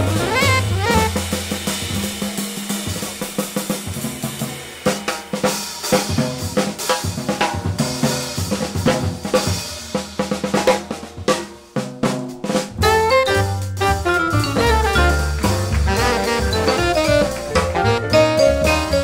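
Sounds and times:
jazz drum solo: 0:00.0 - 0:19.0.

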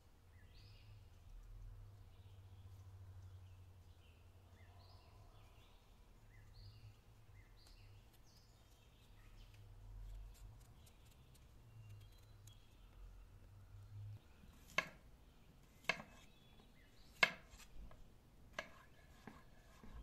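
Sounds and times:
faint bird chirps: 0:00.3 - 0:17.2
knife cutting potato peel: 0:14.5 - 0:15.0, 0:15.6 - 0:16.3, 0:17.1 - 0:20.0.

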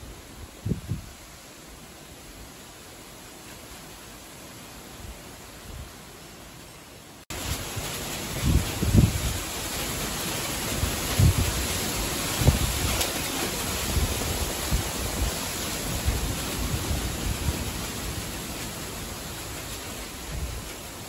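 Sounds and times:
leaves rustling in wind: 0:00.0 - 0:21.0
wind buffeting microphone: 0:00.4 - 0:01.2, 0:07.4 - 0:09.6, 0:10.7 - 0:18.4, 0:19.3 - 0:20.9.

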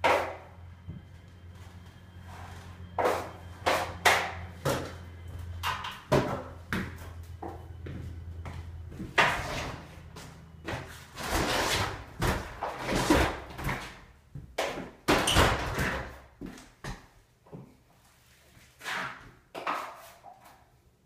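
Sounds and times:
low hum: 0:00.0 - 0:10.8.

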